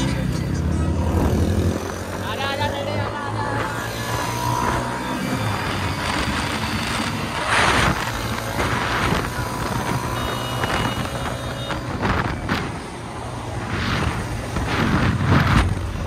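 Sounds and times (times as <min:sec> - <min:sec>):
motorcycle engines running: 0:00.0 - 0:16.0
wind rush on microphone: 0:05.5 - 0:16.0.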